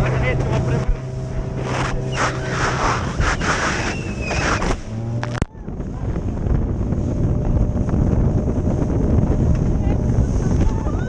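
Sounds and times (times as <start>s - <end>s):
motorboat engine drone: 0.0s - 11.0s
wind noise on microphone: 0.0s - 11.0s
water and spray: 0.7s - 5.1s.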